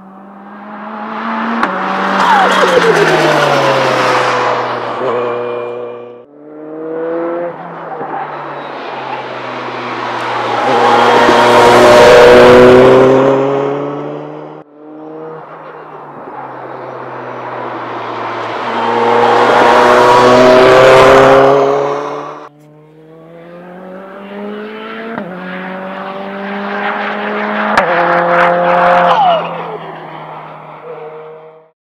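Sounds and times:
racing car engine accelerating: 0.0 - 31.7.

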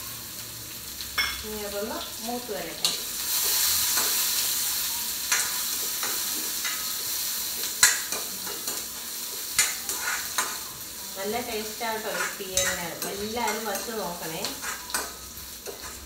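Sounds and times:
hot oil sizzling: 0.0 - 16.0
metal spoon clicking against pan: 12.2 - 15.9.

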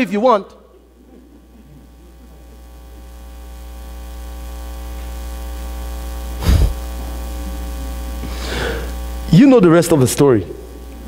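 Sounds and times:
electrical mains hum: 0.0 - 11.0
brief thump: 6.4 - 6.8.

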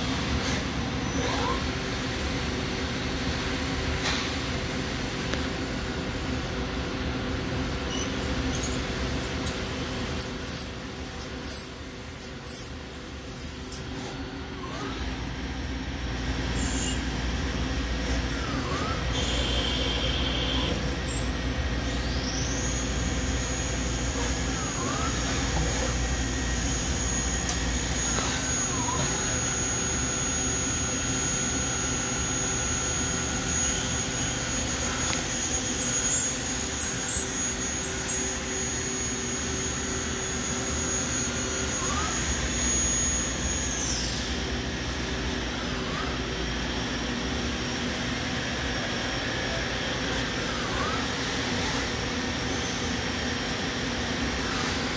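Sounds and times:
high-pitched spindle whine: 1.2 - 54.9
lathe machine hum: 13.9 - 54.9.

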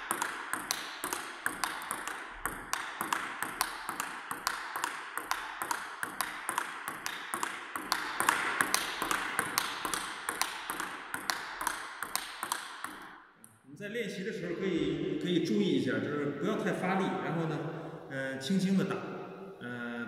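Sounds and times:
table tennis ball clicks: 0.0 - 13.2.

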